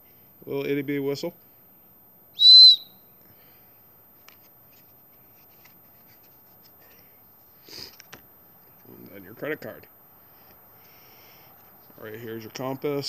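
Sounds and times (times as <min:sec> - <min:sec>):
high-pitched whistle blast: 0:02.4 - 0:03.1.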